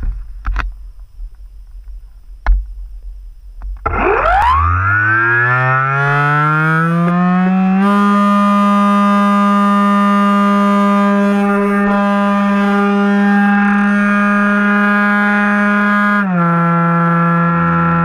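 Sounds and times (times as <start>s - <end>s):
electric motor propeller hum: 3.8s - 18.0s.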